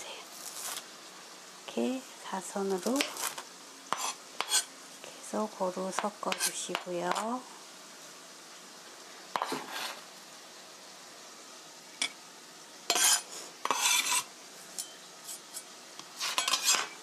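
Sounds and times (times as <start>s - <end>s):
knife scraping on cutting board: 3.0s - 4.7s, 6.3s - 6.6s, 9.4s - 10.0s, 12.9s - 17.0s.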